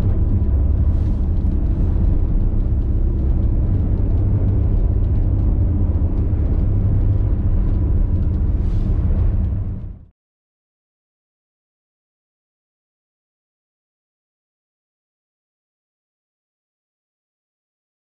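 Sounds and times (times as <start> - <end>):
boat engine drone: 0.0 - 10.1.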